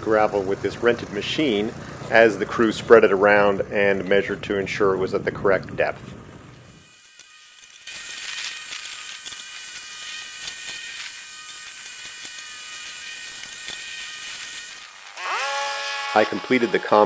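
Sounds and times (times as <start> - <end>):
plate compactor droning: 0.0 - 5.1, 9.8 - 17.0.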